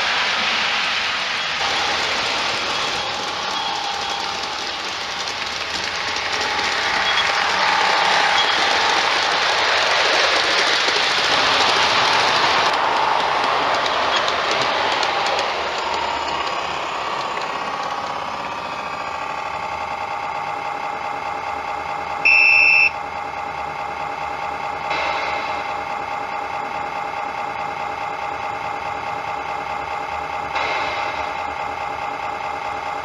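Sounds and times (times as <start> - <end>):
model locomotive electronic hum: 0.0 - 33.0
loud high beep: 22.2 - 23.0.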